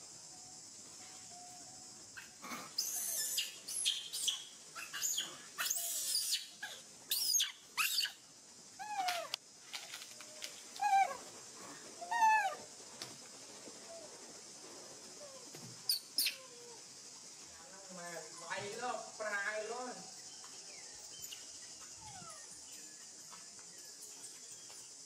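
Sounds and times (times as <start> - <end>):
young monkey screaming: 2.2 - 8.2, 8.8 - 9.4, 10.8 - 11.2, 12.0 - 12.7, 15.9 - 16.8.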